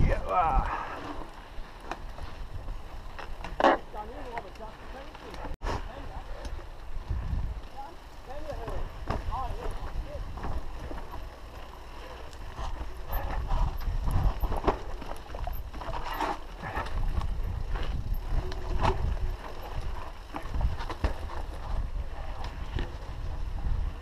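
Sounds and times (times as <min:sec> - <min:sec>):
wind buffeting microphone: 0:00.0 - 0:03.6, 0:05.8 - 0:11.7, 0:12.3 - 0:24.0
mountain bike clattering over rocks: 0:00.0 - 0:23.8.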